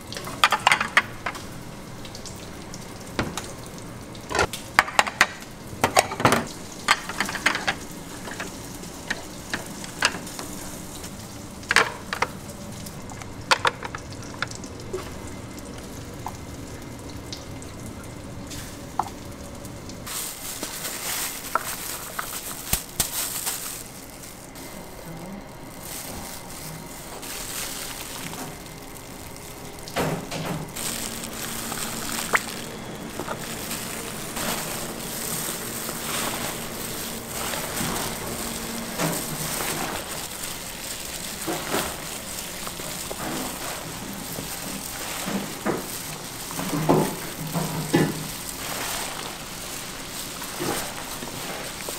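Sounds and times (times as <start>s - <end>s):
wet squishing of pasta mixing: 20.0s - 51.9s.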